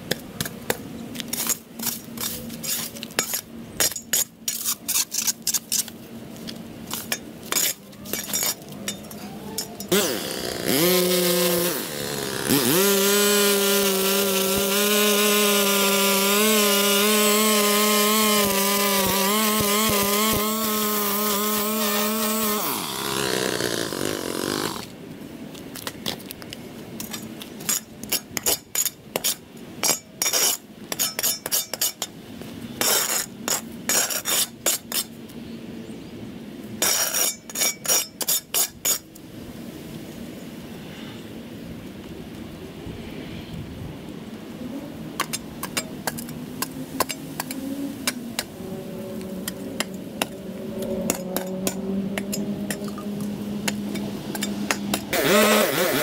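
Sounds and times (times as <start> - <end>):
small power tool engine revving: 9.9 - 24.9, 55.1 - 56.0.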